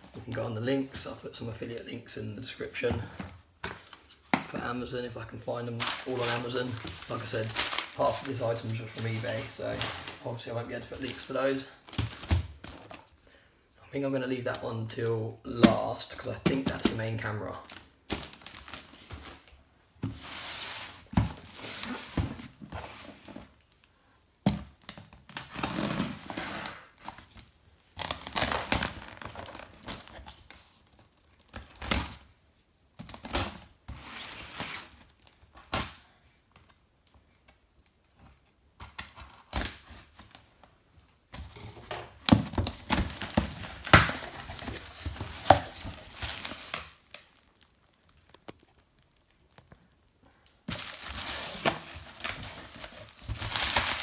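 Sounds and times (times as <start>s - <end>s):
bubble wrap crinkling: 5.7s - 13.0s, 24.8s - 32.2s, 41.6s - 54.0s.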